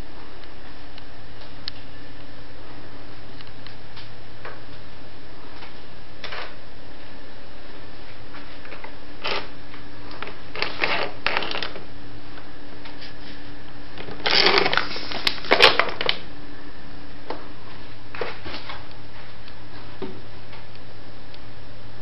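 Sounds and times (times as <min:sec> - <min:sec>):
steady low hum: 0:00.0 - 0:22.0
plastic wrapper crinkling: 0:10.1 - 0:11.9, 0:14.0 - 0:16.2.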